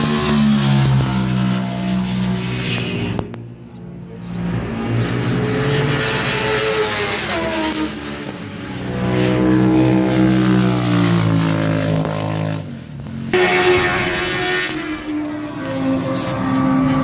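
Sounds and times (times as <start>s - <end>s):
racing motorcycles screaming: 0.0s - 2.6s.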